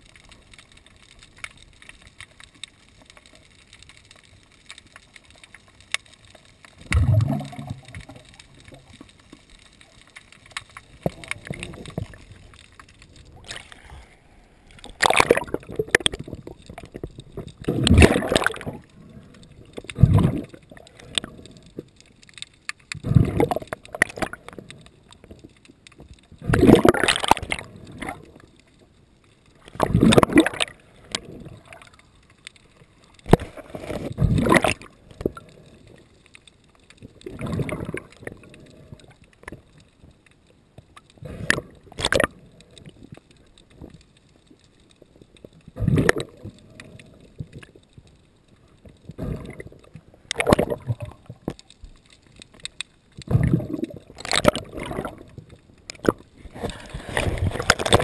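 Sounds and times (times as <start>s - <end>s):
sea water sloshing and gurgling: 0.0s - 58.0s.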